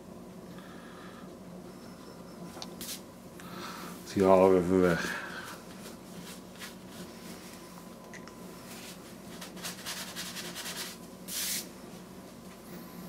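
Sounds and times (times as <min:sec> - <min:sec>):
tissue scrubbing on paper: 0:08.7 - 0:11.7.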